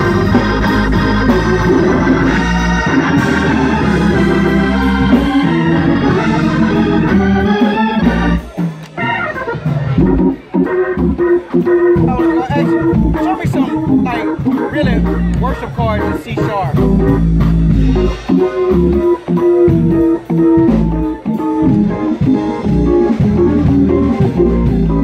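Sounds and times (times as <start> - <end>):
church organ playing: 0.0 - 25.0.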